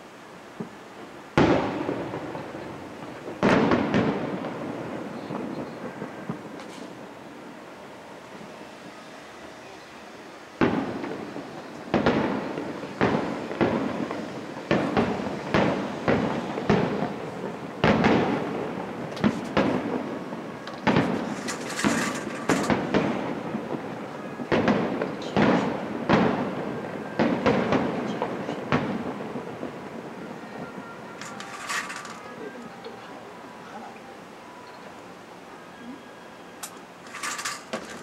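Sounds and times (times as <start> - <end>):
firework shells bursting: 20.6 - 23.4, 31.1 - 32.4, 36.6 - 38.0.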